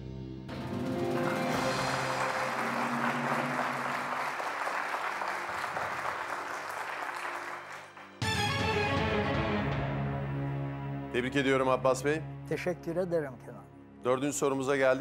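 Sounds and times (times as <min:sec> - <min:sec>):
music cue: 0:00.5 - 0:14.1
game-show music: 0:00.5 - 0:15.0
audience applauding: 0:00.7 - 0:08.7.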